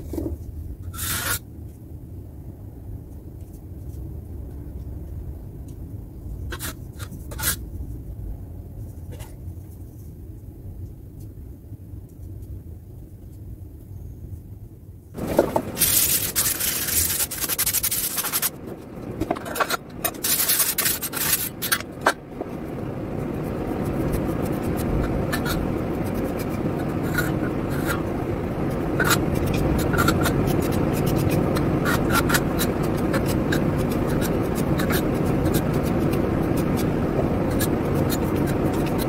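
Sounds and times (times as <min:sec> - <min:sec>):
putty knife scraping wall: 0:00.9 - 0:01.4, 0:15.2 - 0:22.6, 0:28.7 - 0:39.0
low rushing noise: 0:15.2 - 0:39.0.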